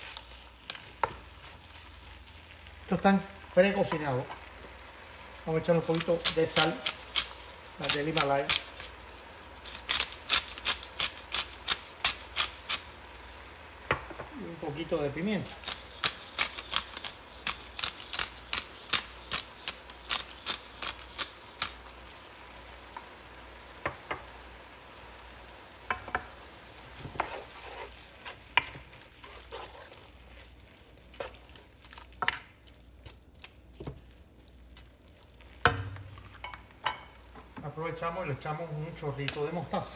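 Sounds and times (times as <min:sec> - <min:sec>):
faint sizzle: 0:00.0 - 0:39.9
spatula knocking and scraping pan: 0:00.9 - 0:01.3, 0:25.9 - 0:26.3, 0:27.0 - 0:30.0, 0:35.6 - 0:37.6.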